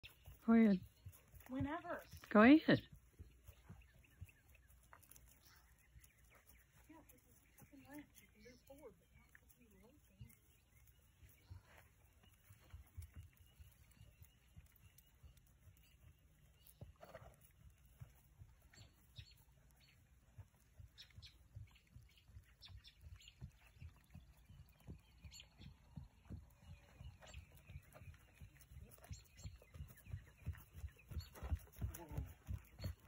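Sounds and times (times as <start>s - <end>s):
horse hoofbeats on grass: 0.0s - 33.0s.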